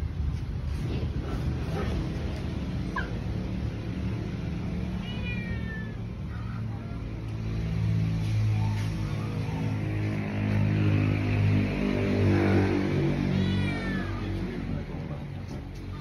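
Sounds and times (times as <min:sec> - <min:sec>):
pet animal crying: 0:13.3 - 0:14.4.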